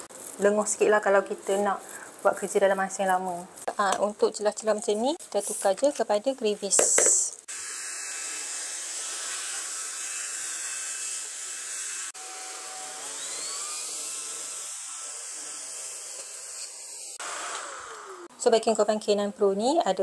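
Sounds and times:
stick vacuum whining: 12.2 - 14.2, 14.9 - 18.3.

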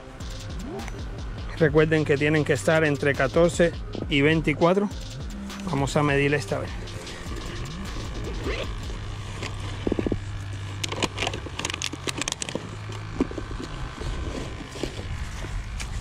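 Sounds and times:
steady low hum: 0.0 - 16.0
sharp clicks: 4.9 - 5.8
backpack rustling: 7.0 - 16.0.

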